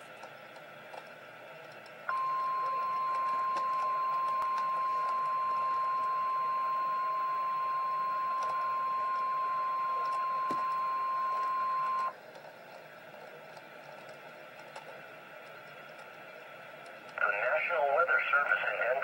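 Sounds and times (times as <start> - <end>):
steady alarm tone from radio: 2.1 - 12.1.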